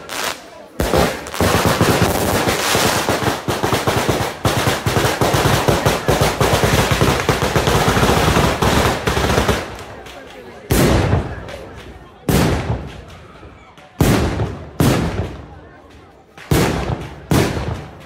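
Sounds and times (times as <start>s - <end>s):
rapid firecracker rattle: 0.0s - 18.0s
firecracker bang: 0.8s - 10.0s, 10.6s - 11.6s, 16.4s - 18.0s.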